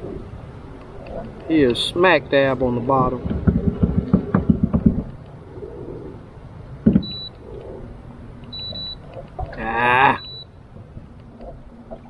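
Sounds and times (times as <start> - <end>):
short electronic beeps: 7.0 - 7.3, 8.5 - 9.0, 10.1 - 10.5.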